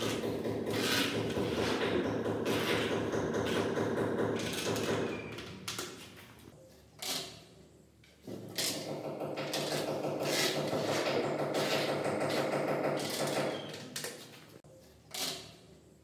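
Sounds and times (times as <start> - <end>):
plastic strip scraping and rubbing: 0.0 - 3.7, 9.4 - 14.4.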